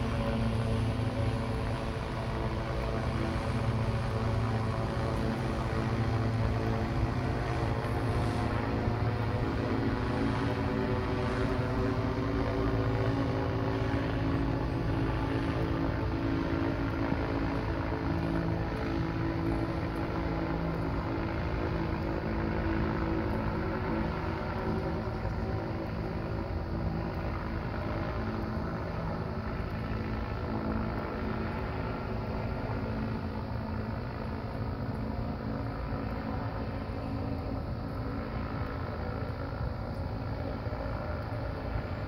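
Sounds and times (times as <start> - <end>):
airship propeller engines humming: 0.0 - 42.0.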